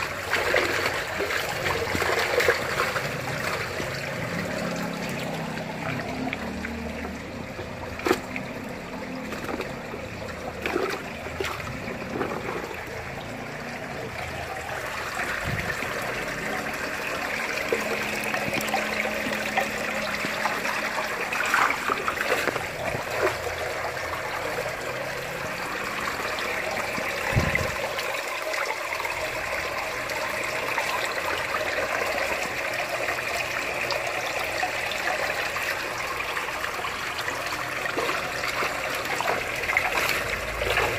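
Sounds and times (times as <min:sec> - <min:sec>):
water trickling in fish tank: 0:00.0 - 0:40.9
fish thrashing at surface: 0:07.7 - 0:09.8, 0:10.5 - 0:13.1, 0:37.6 - 0:40.9
net sweeping through water: 0:37.9 - 0:40.9.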